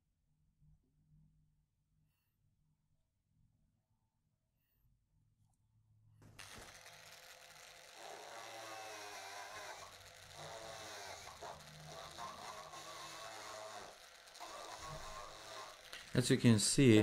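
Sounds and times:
electric drill boring: 0:06.2 - 0:17.0.

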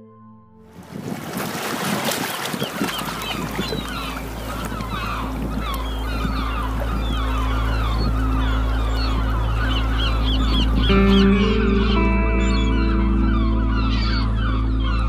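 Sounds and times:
sea waves washing over rocks: 0:00.8 - 0:07.9
birds calling: 0:01.0 - 0:15.0
low steady drone: 0:03.8 - 0:15.0.

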